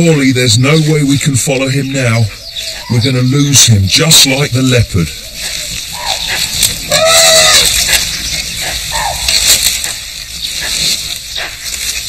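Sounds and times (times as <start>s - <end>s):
elephant call: 5.3s - 9.6s
bamboo crackling and snapping: 5.4s - 12.0s.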